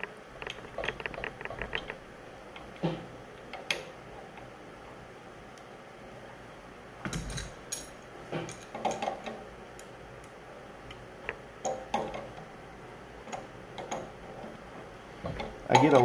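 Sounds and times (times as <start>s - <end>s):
wrench clinking on brass fittings: 15.3s - 16.0s.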